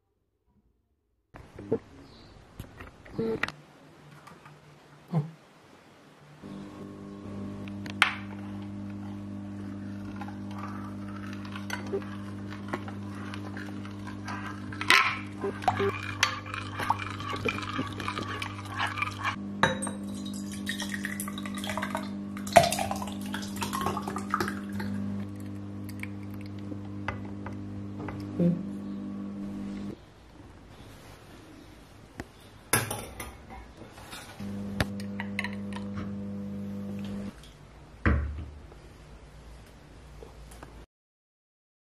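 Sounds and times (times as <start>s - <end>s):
metal spoon scraping glass bowl: 13.1s - 19.9s.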